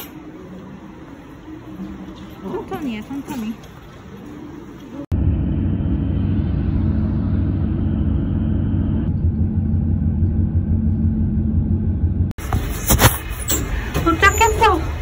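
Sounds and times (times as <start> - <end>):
road and engine rumble: 0.0 - 15.0
low hum: 5.0 - 12.4.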